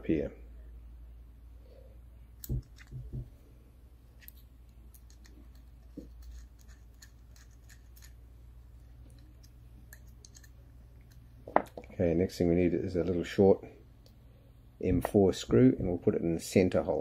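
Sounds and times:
small metal parts clicking and tapping: 2.4 - 3.1, 4.2 - 8.2, 9.0 - 11.9.

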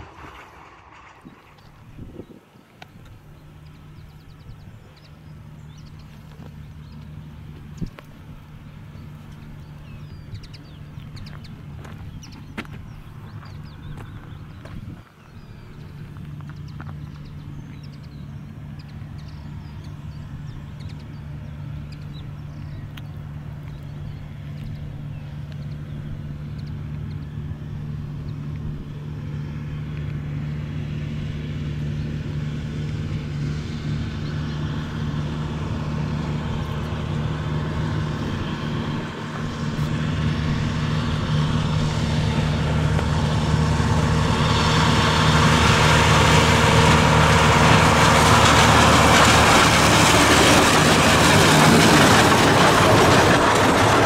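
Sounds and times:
diesel locomotive engine humming: 0.0 - 54.0
wagons rattling on track: 40.6 - 54.0.

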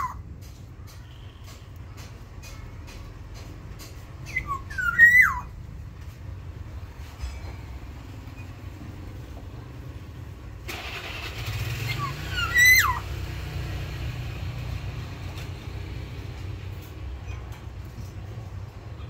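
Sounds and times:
bird fluty whistle: 4.3 - 5.5, 11.9 - 13.0.

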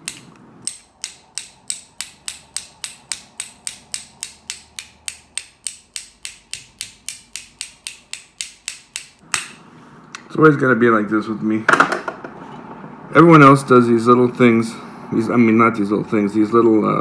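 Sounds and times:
ratchet clicking: 0.1 - 9.2.

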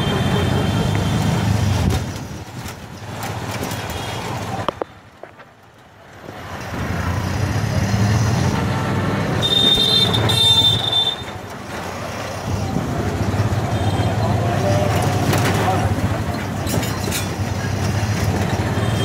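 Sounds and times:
auto-rickshaw engine rumbling: 0.0 - 19.0
vehicle horn tooting: 9.4 - 11.4, 18.8 - 19.0.

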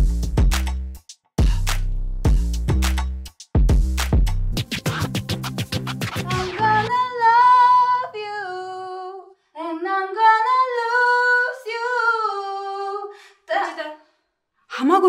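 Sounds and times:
woman singing unaccompanied: 6.3 - 14.0.

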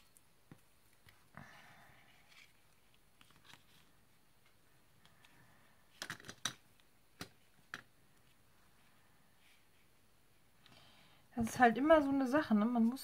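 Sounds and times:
paper rustling: 2.1 - 4.5.

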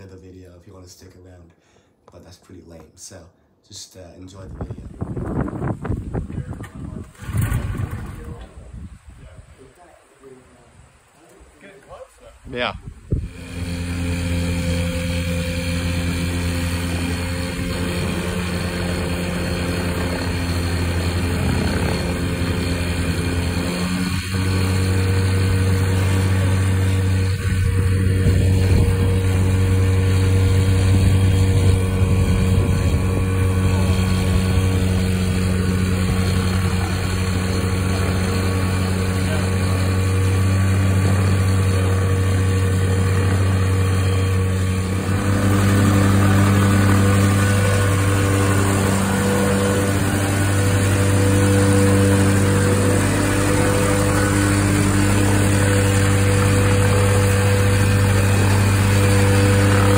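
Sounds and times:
two-stroke aircraft engine running: 12.6 - 59.9.

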